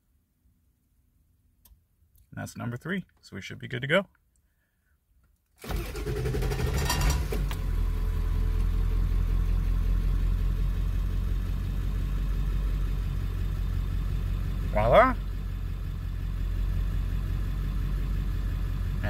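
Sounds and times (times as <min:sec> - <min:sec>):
diesel engine starting and idling: 0:05.6 - 0:19.0.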